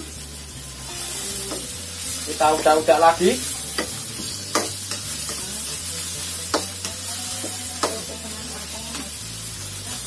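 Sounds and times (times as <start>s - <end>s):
spice paste sizzling in a wok: 0.0s - 10.0s.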